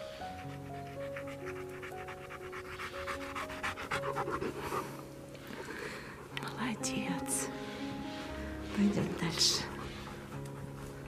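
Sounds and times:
dog panting: 0:00.0 - 0:11.0
slow background music: 0:00.0 - 0:11.0.

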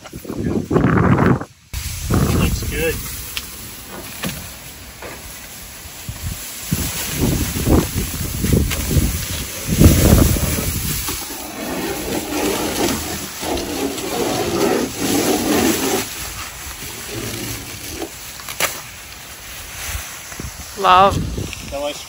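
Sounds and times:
wind buffeting microphone: 0:00.0 - 0:03.4, 0:05.9 - 0:18.2, 0:19.7 - 0:22.0
plastic sheet rustling and crinkling: 0:01.8 - 0:22.0.

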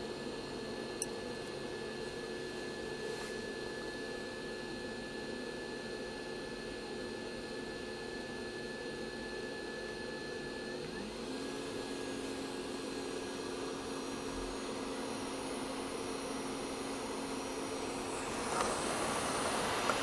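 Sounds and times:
fan tone: 0:00.0 - 0:20.0
hot air blower hissing: 0:10.9 - 0:20.0.

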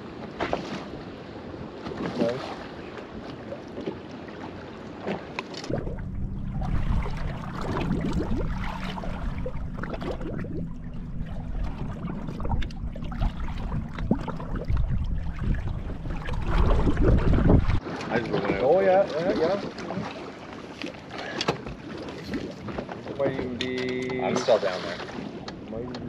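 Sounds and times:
water lapping against boat hull: 0:00.0 - 0:26.0
wind rumble on microphone: 0:05.6 - 0:18.6.

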